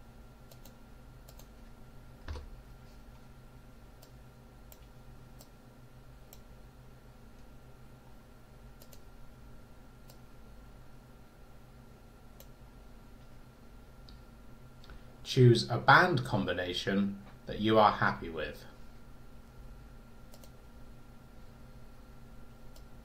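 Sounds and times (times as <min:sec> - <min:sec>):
faint electrical hum: 0:00.0 - 0:23.0
computer mouse clicking: 0:00.4 - 0:01.6, 0:04.0 - 0:05.6, 0:06.3 - 0:06.5, 0:08.8 - 0:09.1, 0:12.4 - 0:12.6, 0:20.3 - 0:20.6, 0:22.7 - 0:22.9.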